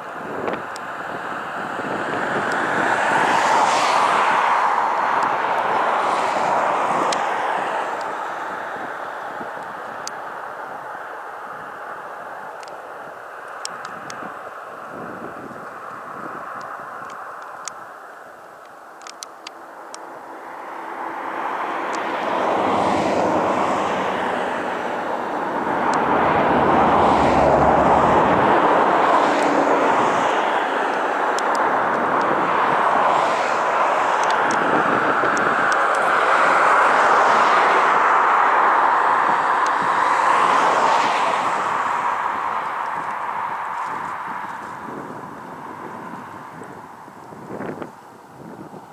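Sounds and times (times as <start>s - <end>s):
propeller plane taking off: 19.0s - 47.9s.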